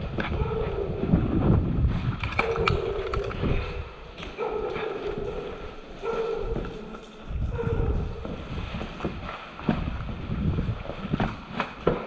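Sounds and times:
footsteps on gritty concrete: 4.1 - 11.5.

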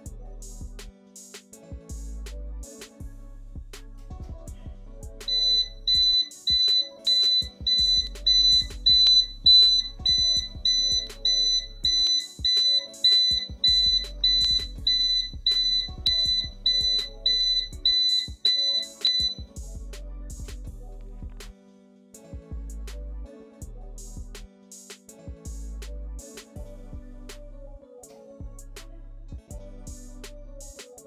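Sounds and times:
background music: 0.0 - 31.0
fast high electronic beeps: 5.3 - 19.5.

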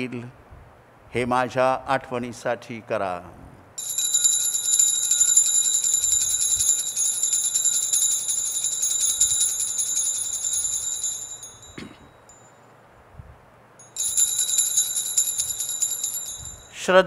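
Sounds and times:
altar bells jingling: 3.8 - 12.6, 13.8 - 16.8.

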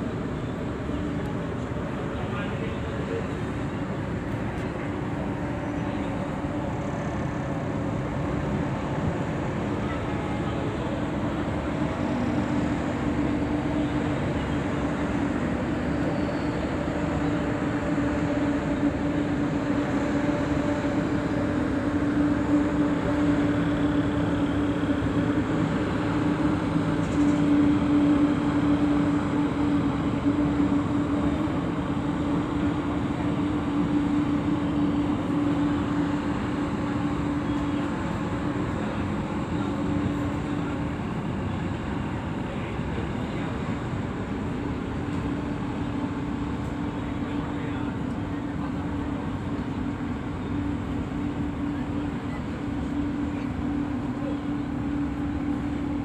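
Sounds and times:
ferry diesel engines droning: 0.0 - 56.0.

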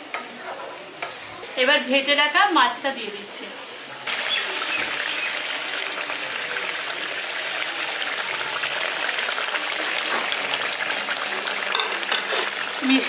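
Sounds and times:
gravy boiling with bubbles bursting: 4.0 - 12.8.

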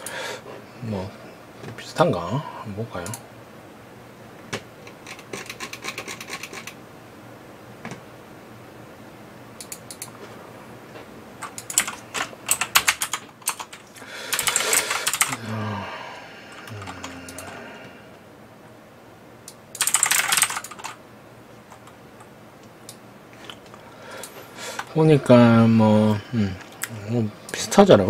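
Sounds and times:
keyboard typing clicks: 9.6 - 10.1, 11.4 - 15.4, 16.6 - 17.6, 19.4 - 21.0.

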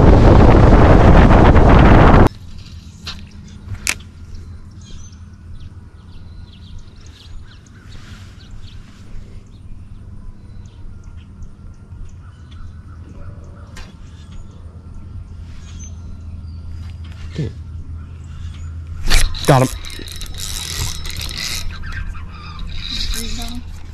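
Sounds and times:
steady low hum: 0.0 - 23.9
wild birds calling: 2.9 - 23.9.

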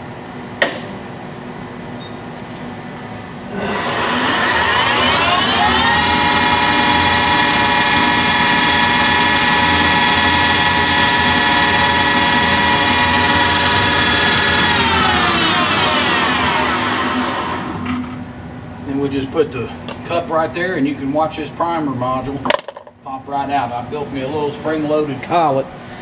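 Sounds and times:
lathe spindle whine: 3.5 - 18.1.

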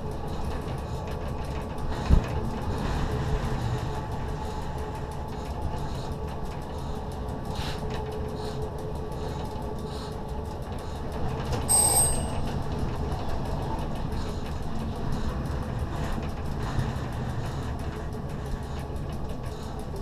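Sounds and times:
train wheels rumbling on track: 0.0 - 20.0
high-pitched ringing tone: 11.7 - 12.6.

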